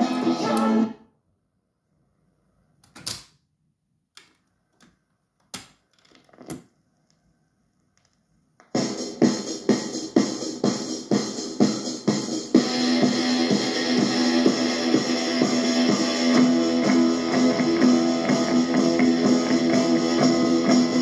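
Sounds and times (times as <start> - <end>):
rock and roll record with singing: 0.0 - 1.0, 8.8 - 21.0.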